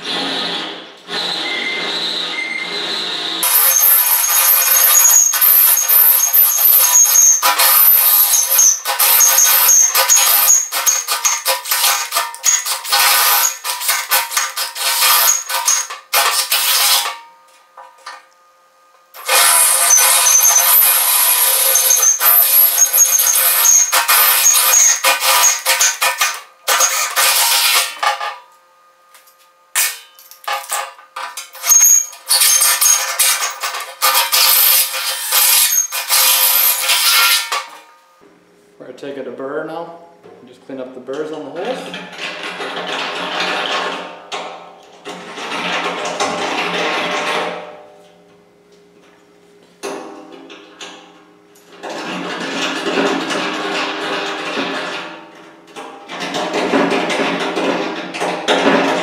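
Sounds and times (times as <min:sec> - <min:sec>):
drill bit grinding metal: 0:00.0 - 0:17.1, 0:19.2 - 0:28.2, 0:31.5 - 0:37.7
deburring tool scraping steel: 0:00.0 - 0:17.3, 0:19.2 - 0:28.4, 0:29.8 - 0:38.0.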